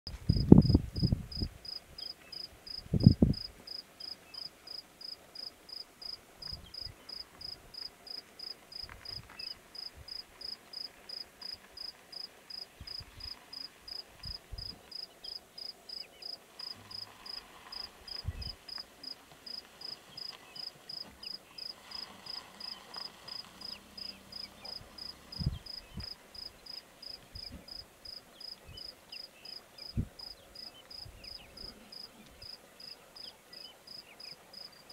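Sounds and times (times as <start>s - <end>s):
insect chirping: 0.3s - 33.3s, 33.9s - 34.9s.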